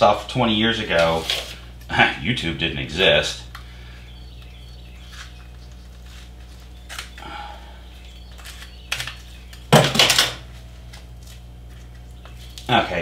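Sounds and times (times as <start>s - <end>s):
steady low hum: 0.0s - 13.0s
rustling and scraping: 0.9s - 1.8s, 5.0s - 7.2s, 8.0s - 12.8s
tape rustling and clicks: 4.4s - 7.3s, 7.9s - 12.8s.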